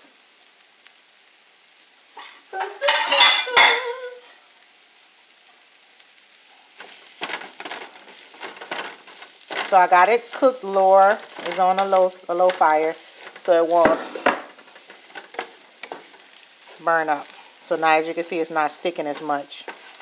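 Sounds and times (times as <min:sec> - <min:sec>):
chicken and onions sizzling: 0:00.0 - 0:20.0
wooden spatula scraping a pan: 0:06.7 - 0:20.0.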